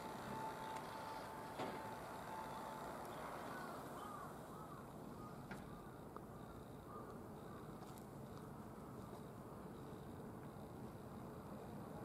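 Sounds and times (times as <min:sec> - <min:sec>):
faint outdoor background noise: 0:00.0 - 0:12.0
short bird calls: 0:03.1 - 0:06.0.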